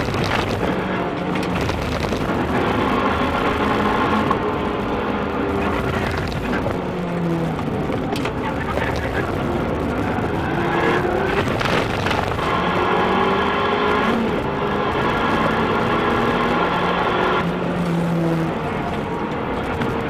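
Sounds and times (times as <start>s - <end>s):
car engine running hard: 0.0s - 20.0s
tyre and wind noise: 0.0s - 20.0s.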